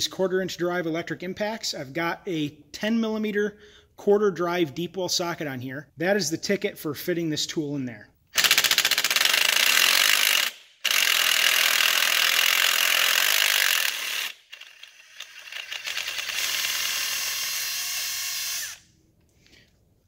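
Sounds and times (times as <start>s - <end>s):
electric impact driver hammering: 8.4s - 18.8s.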